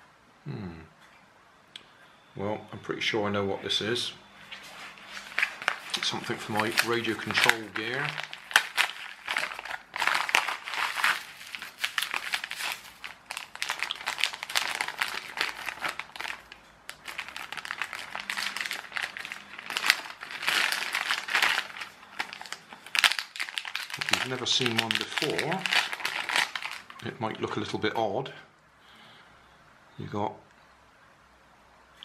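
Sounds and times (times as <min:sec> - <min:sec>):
packaging crinkling and rustling: 0:04.5 - 0:27.2.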